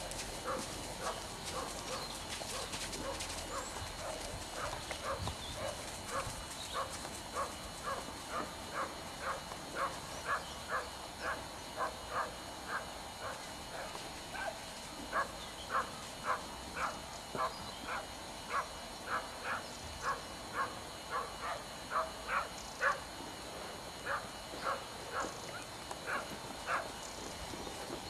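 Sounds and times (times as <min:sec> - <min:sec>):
horse hoofbeats trotting: 0:00.0 - 0:11.0, 0:24.0 - 0:28.0.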